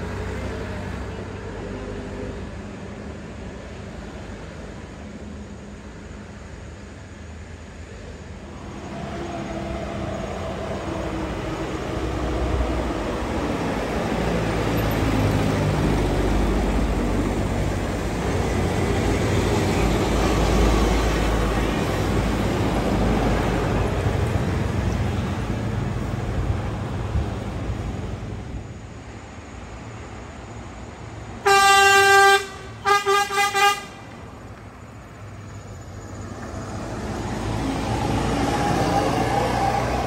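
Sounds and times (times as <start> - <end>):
diesel truck driving past: 0.0 - 5.0, 8.0 - 40.0
motorbike passing: 36.2 - 40.0.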